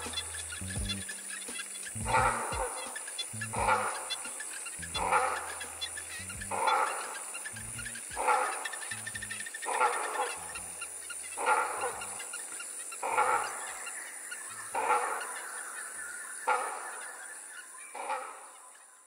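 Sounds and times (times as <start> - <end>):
low bass notes: 0.0 - 1.1, 1.9 - 2.7, 3.3 - 4.0, 4.8 - 6.8, 7.5 - 8.3, 8.9 - 9.5, 10.3 - 12.2
honking goose-like call: 0.0 - 15.4.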